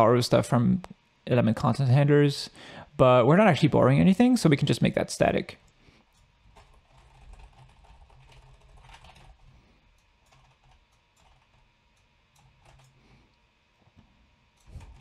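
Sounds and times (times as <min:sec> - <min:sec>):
low steady hum: 0:00.0 - 0:15.0
computer keyboard typing: 0:06.5 - 0:13.0, 0:14.6 - 0:15.0.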